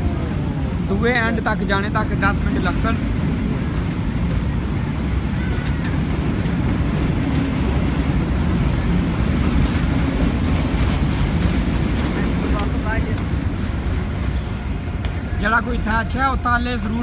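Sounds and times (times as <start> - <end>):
passenger train on bridge: 0.0 - 17.0.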